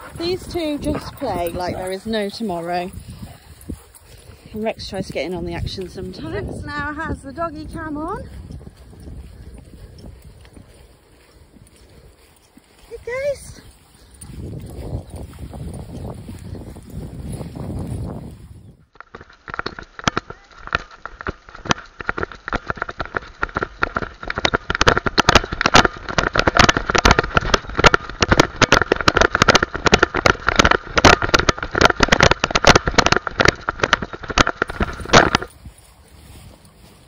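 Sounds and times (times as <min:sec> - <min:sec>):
camera rattling in its mount: 0:13.6 - 0:18.3, 0:19.0 - 0:36.8.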